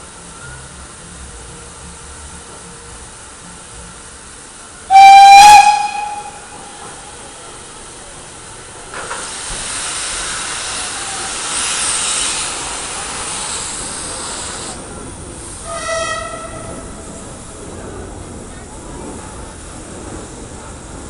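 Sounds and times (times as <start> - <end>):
steam hissing from drain cocks: 4.8 - 16.2
steam locomotive whistle blast: 4.9 - 6.8, 15.6 - 16.8.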